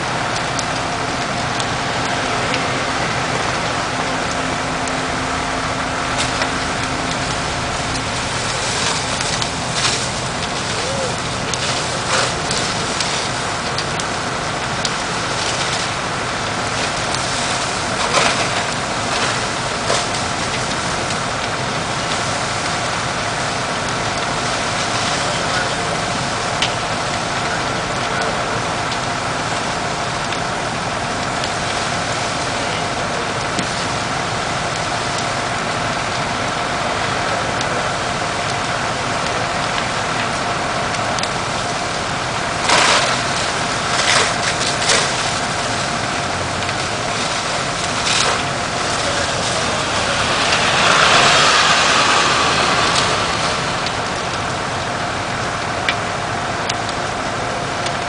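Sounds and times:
fire engine motor running: 0.0 - 58.0
sharp cracks: 6.1 - 30.5, 37.6 - 57.1
water spray hissing: 42.8 - 55.7.

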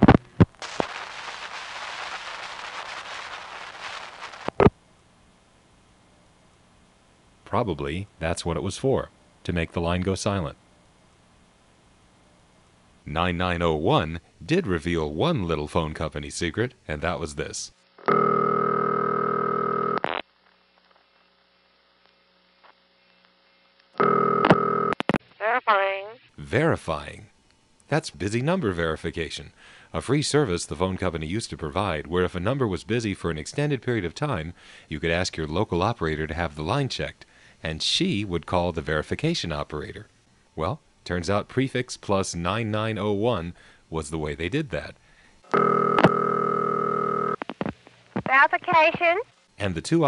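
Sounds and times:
crackly telephone line hiss: 0.0 - 5.9, 17.9 - 26.2, 45.4 - 49.6
buzzy telephone ringback tone: 18.1 - 20.0, 24.0 - 25.0, 45.6 - 47.4.

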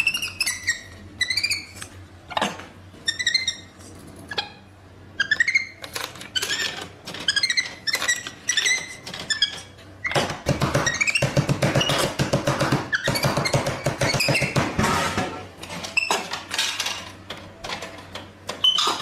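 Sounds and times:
monkey chirping squeaks: 0.0 - 1.8, 3.1 - 3.7, 5.2 - 10.2.

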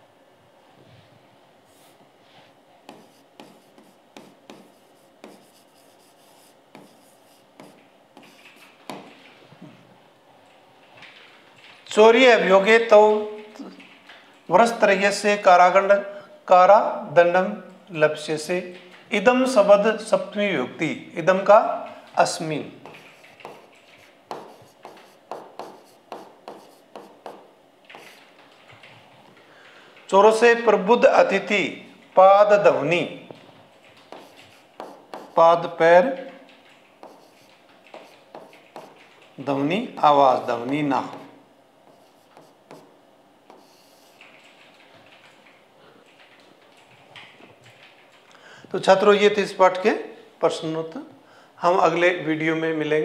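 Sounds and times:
stylus tapping on touchscreen: 2.9 - 9.2, 22.8 - 28.3, 34.0 - 35.4, 37.0 - 39.1, 43.5 - 44.2.

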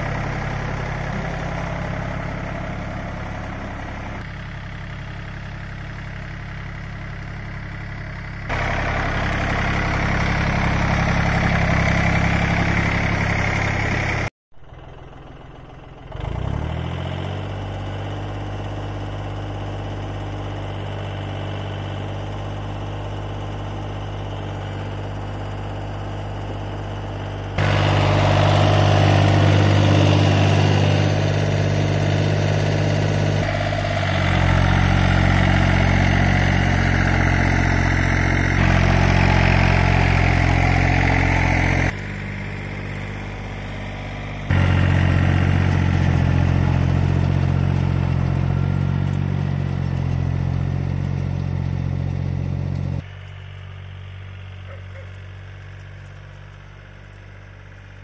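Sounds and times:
tractor engine running: 0.0 - 58.0
rotary tiller in soil: 8.5 - 14.3, 16.0 - 58.0.

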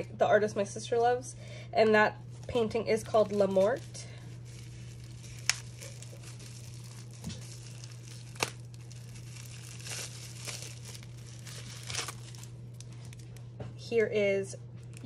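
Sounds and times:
plastic wrap crinkling: 2.3 - 13.5.

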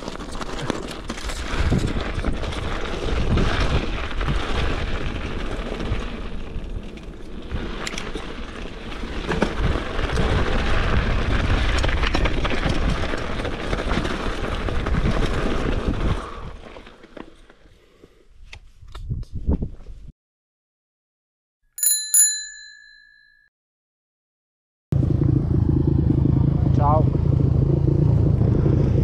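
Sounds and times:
wind buffeting microphone: 18.8 - 20.1.

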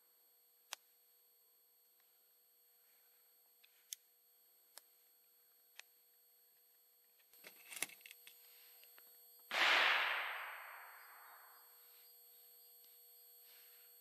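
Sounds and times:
loud gunshot with echo: 9.5 - 11.5.

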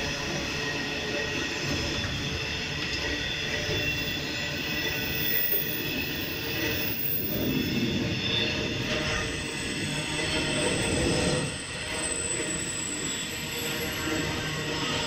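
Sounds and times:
high steady whine: 0.0 - 15.0
train wheels rumbling on rail: 0.0 - 15.0.

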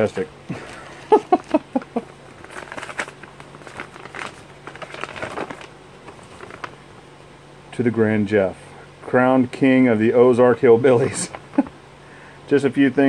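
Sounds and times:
plastic bag and paper crinkling: 0.1 - 6.8
notebook paper being unfolded: 2.3 - 6.8.

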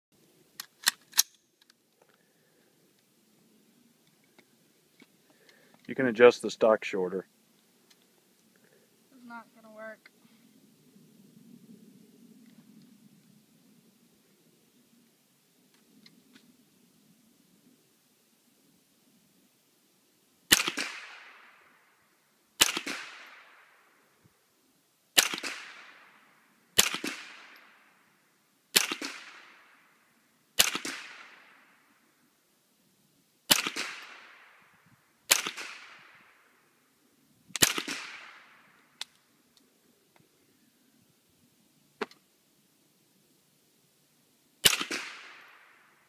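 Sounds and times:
rifle shots with echo: 20.5 - 21.8, 22.6 - 23.9, 25.2 - 27.9, 28.7 - 29.9, 30.6 - 31.9, 33.5 - 34.7, 35.3 - 36.6, 37.6 - 38.8, 44.6 - 46.0.

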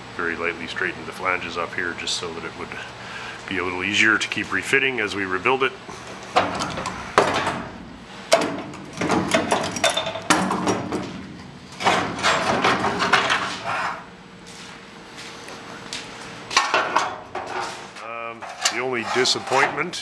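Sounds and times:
metal rattling and scraping: 8.4 - 14.0, 16.5 - 20.0.

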